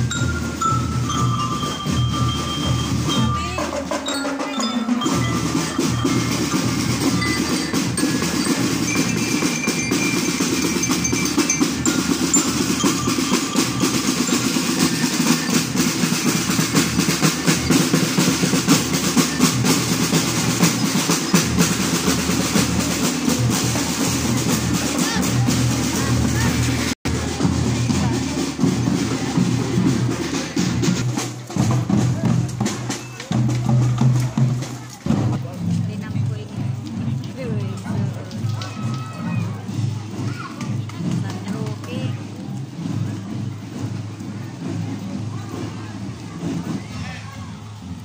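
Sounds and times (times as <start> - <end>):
bell lyres ringing: 0.0 - 26.8
snare and bass drums beating: 0.0 - 48.0.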